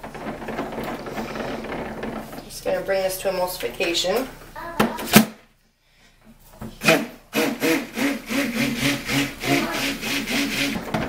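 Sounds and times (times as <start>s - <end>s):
stick blender whirring: 6.8s - 11.0s.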